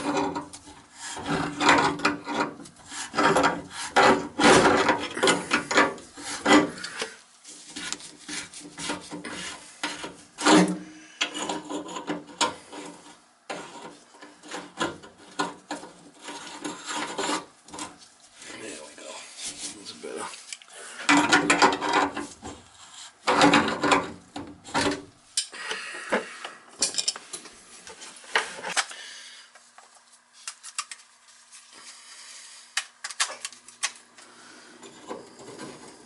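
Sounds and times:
cloth scrubbing plastic pipe: 0.0 - 10.7.

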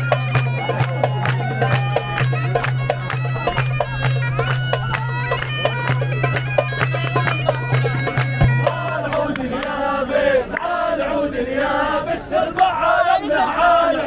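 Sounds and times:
bagpipes playing folk melody: 0.0 - 9.2
hand clapping: 0.1 - 9.8
men chanting: 8.5 - 14.0.

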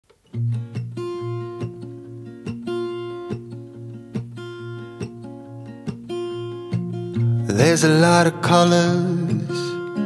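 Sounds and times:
slow picked guitar: 0.1 - 10.0.

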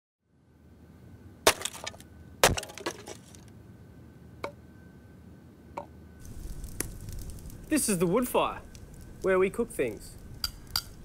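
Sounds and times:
wood pieces clattering: 1.5 - 3.5.

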